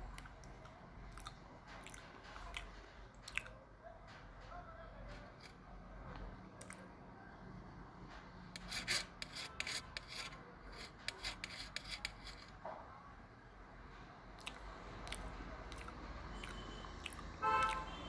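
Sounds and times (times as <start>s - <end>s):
metal spoon scraping steel plate: 8.6s - 12.6s.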